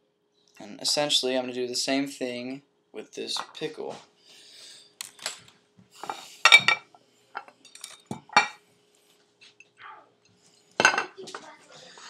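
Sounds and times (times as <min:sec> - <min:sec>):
objects clinking on ceramic plate: 0:06.0 - 0:08.6, 0:10.8 - 0:11.2.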